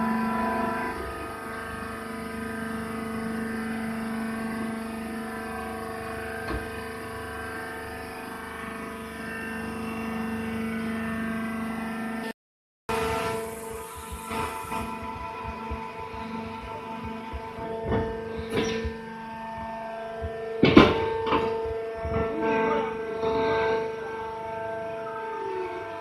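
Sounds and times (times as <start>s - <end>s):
motor and hydraulic pump humming: 0.0s - 12.3s, 12.9s - 26.0s.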